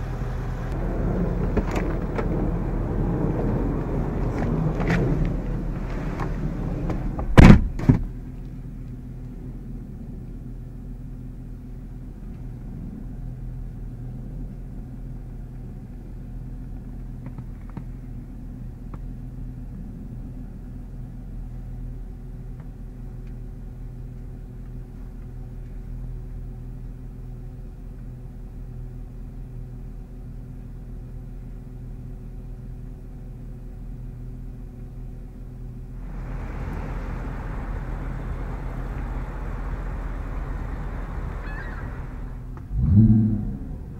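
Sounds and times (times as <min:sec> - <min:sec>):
car engine idling: 0:00.0 - 0:07.4, 0:08.0 - 0:43.9
car door shutting thud: 0:06.9 - 0:08.1.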